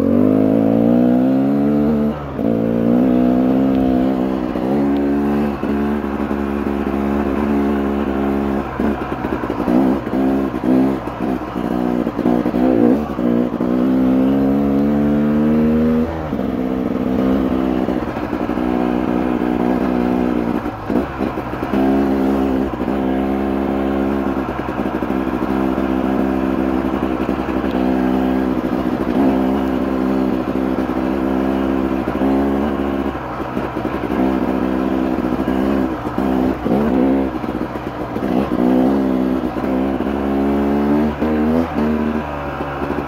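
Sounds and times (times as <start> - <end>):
dirt bike engine revving: 0.0 - 43.0.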